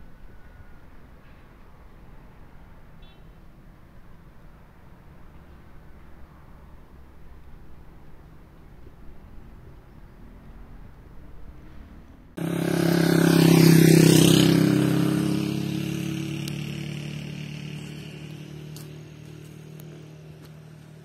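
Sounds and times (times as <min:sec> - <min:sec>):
vehicle engine passing by: 0:10.1 - 0:21.0.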